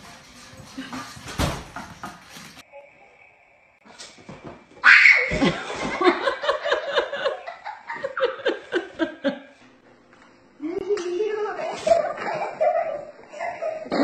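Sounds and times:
laughter: 5.3 - 9.6, 11.8 - 14.0.

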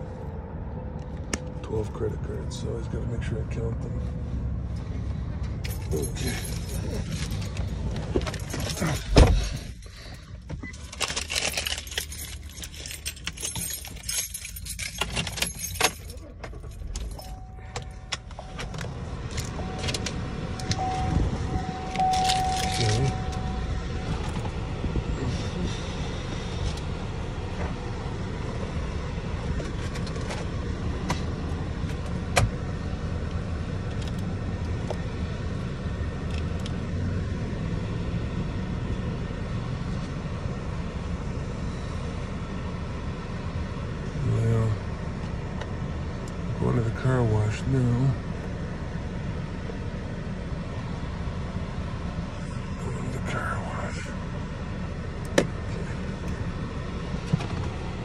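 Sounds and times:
car engine low hum: 0.0 - 58.0
keys jangling and clicking: 5.6 - 23.5
faint steady tone: 12.0 - 29.2.

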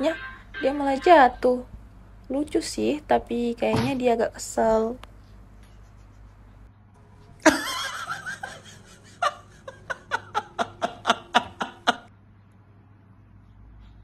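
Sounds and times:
person laughing: 7.4 - 12.1.

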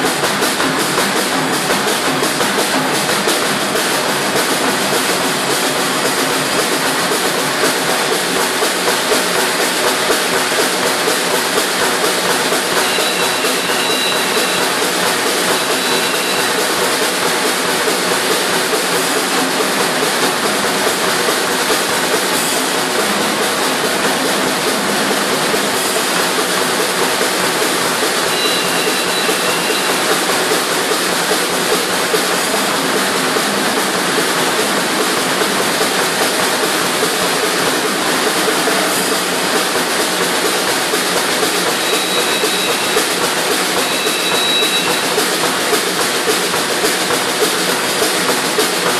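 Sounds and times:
snare drums chugging like train: 0.0 - 48.9.

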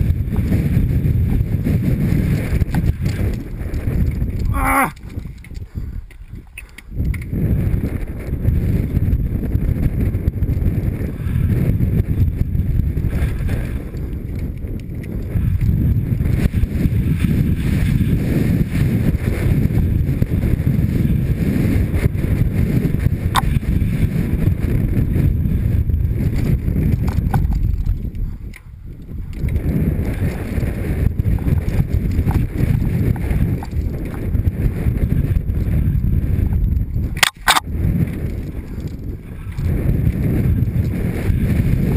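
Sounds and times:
bike rattling: 0.0 - 41.9
bike tyres on dirt: 0.0 - 41.9
wind rumble on microphone: 0.0 - 41.9
sharp clicks: 37.2 - 37.7.

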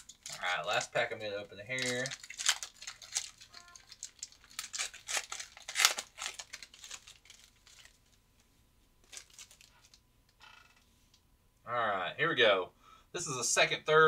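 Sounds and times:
foil wrapper crinkling and tearing: 0.0 - 8.2, 9.0 - 10.0.

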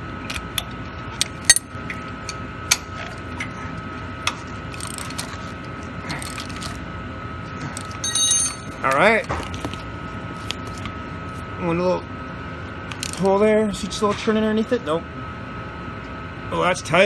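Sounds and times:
high-pitched background hum: 0.0 - 17.0.

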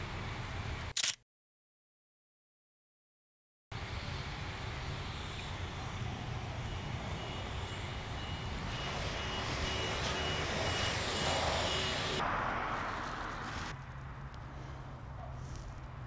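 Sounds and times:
vehicle passing: 5.8 - 16.0
high electronic beep: 6.8 - 12.2.

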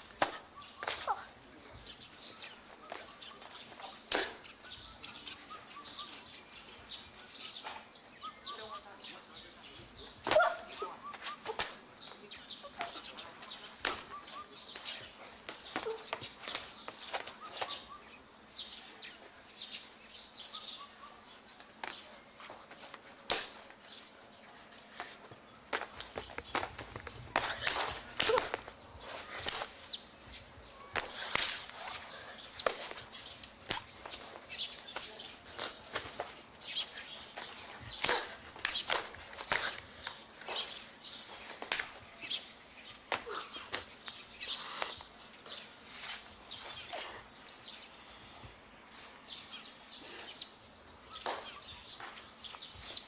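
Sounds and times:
small birds chirping: 0.0 - 53.0
bare feet and hands slapping stone: 12.8 - 17.8, 25.7 - 28.7, 33.6 - 36.4, 37.4 - 40.7, 41.6 - 42.0.

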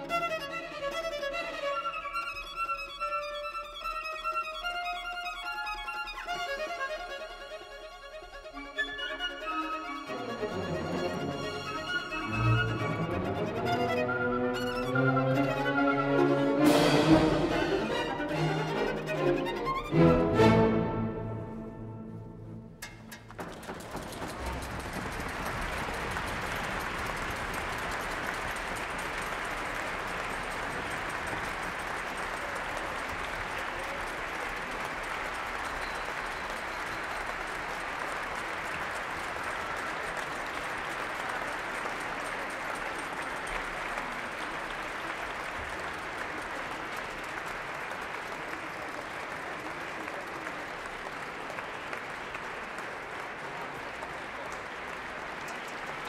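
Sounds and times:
audience applauding: 8.4 - 21.4, 22.8 - 56.0.

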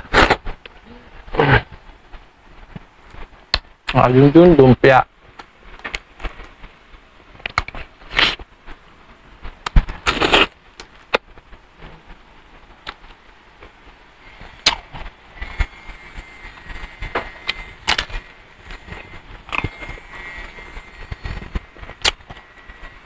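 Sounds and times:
crunchy bites and chewing: 9.6 - 10.6, 14.4 - 22.9.

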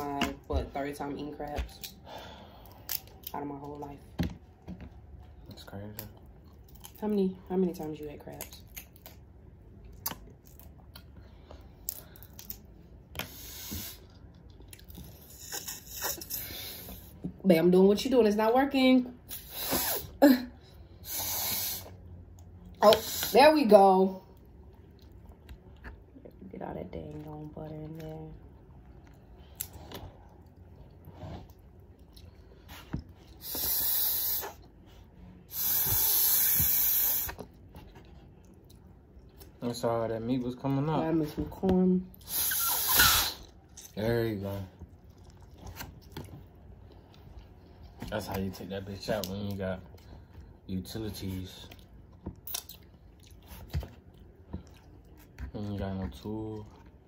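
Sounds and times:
wet chewing and sucking: 8.2 - 17.3, 27.3 - 39.6, 42.1 - 48.4, 51.3 - 55.6
hissing slurp: 33.4 - 34.6, 35.5 - 37.4, 42.2 - 43.5.

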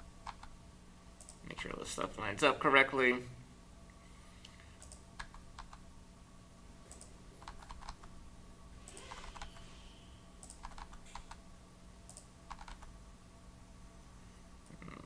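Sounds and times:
keyboard key presses: 10.4 - 11.4, 12.1 - 12.9.

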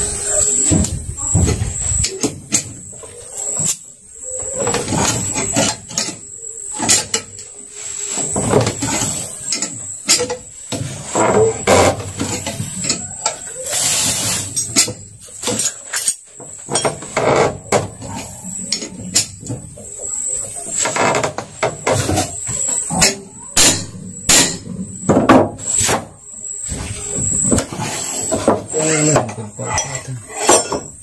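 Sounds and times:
hand tools clattering on metal: 29.0 - 31.0.

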